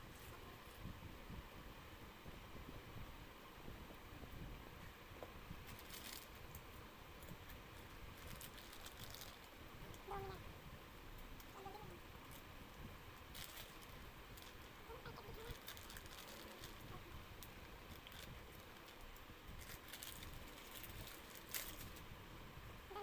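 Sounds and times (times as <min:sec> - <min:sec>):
plastic snack packet crackling: 0:05.7 - 0:06.6, 0:07.8 - 0:10.0, 0:13.2 - 0:22.0.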